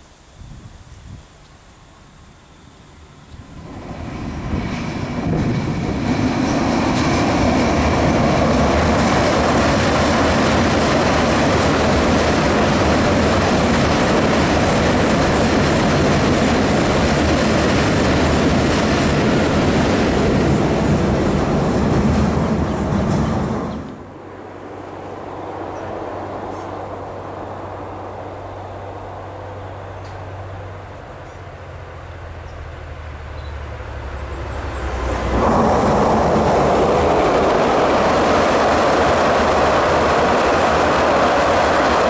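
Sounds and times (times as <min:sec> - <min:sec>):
thin high whine: 0:00.0 - 0:05.4
diesel train engines rumbling: 0:00.0 - 0:42.0.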